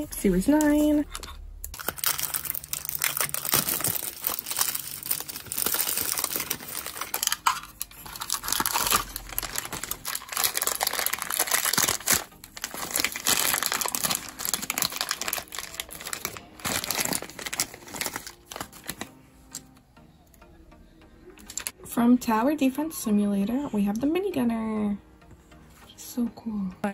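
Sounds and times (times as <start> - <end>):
toy packaging crinkling and tearing: 0.6 - 19.6, 21.4 - 21.7.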